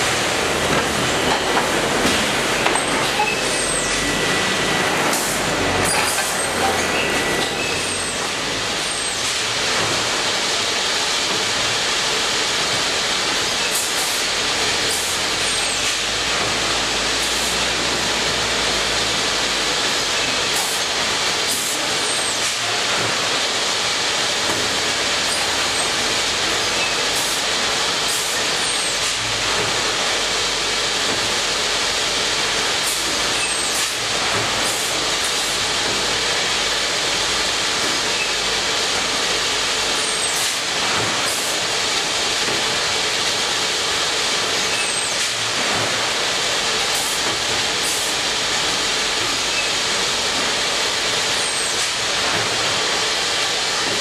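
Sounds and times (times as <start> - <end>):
machine noise with hiss and hum: 0.0 - 54.0.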